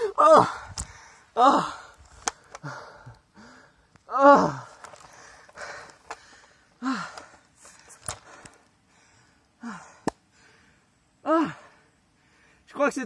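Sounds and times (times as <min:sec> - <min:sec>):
man breathing hard: 0:00.0 - 0:12.7.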